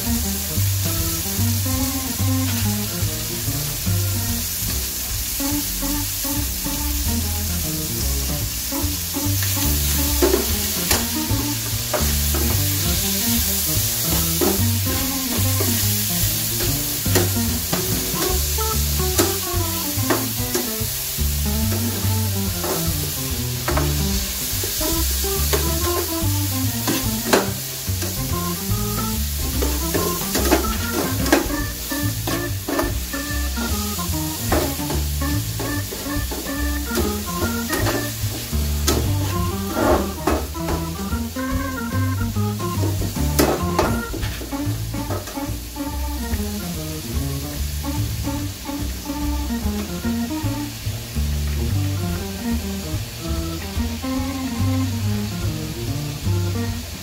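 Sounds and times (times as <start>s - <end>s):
peppers sizzling in a frying pan: 0.0s - 57.0s.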